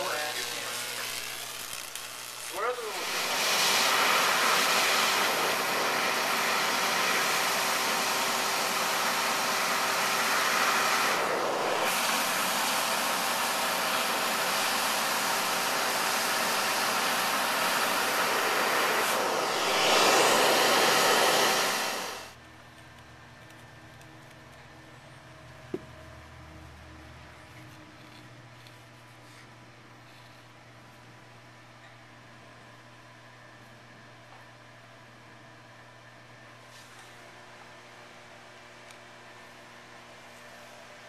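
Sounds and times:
electric arc hissing: 0.0 - 4.6, 11.2 - 22.3.

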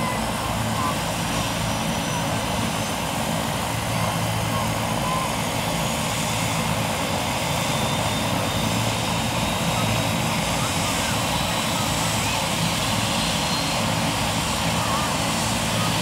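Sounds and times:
helicopter engine and rotors: 0.0 - 16.0.

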